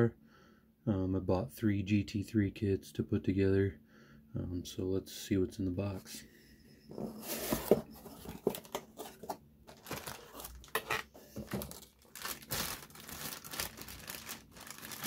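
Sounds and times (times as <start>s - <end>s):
plastic bags crinkling: 7.4s - 15.0s.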